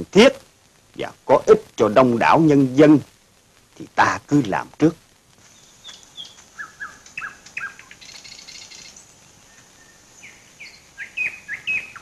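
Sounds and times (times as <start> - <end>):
birds chirping: 5.4 - 12.0
buzzy bird trill: 5.5 - 12.0.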